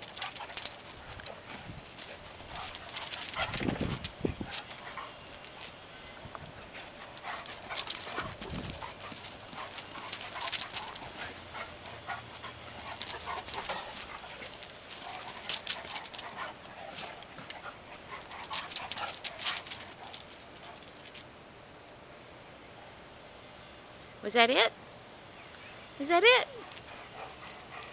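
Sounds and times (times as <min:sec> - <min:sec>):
dog claws clicking on concrete: 0:00.0 - 0:01.4, 0:02.0 - 0:05.8, 0:07.1 - 0:11.3, 0:12.8 - 0:21.2.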